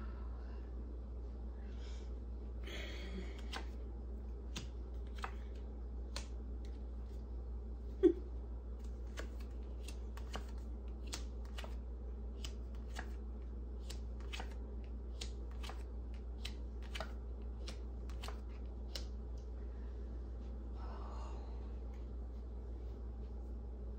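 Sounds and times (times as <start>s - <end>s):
steady low hum: 0.0s - 23.9s
cards being shuffled: 3.3s - 3.8s, 4.5s - 7.3s, 8.8s - 19.2s.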